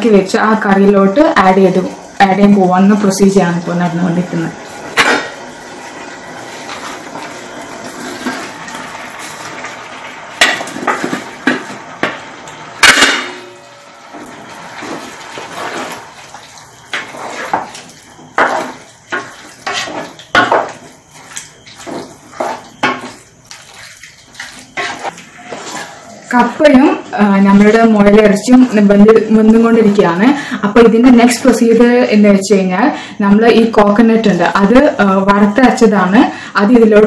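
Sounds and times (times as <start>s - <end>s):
curry bubbling: 0.8s - 12.4s, 13.5s - 30.6s
ladle scraping a pot: 13.5s - 26.4s.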